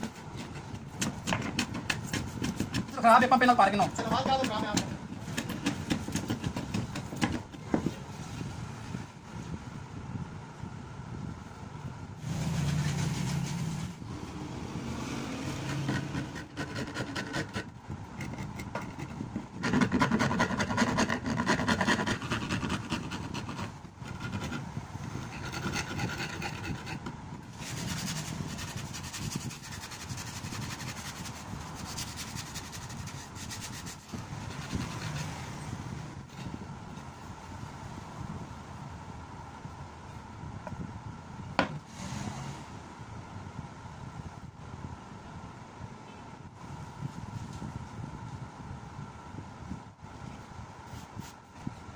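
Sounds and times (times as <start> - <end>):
filing wooden bat handle: 0.0 - 7.8, 15.4 - 35.5.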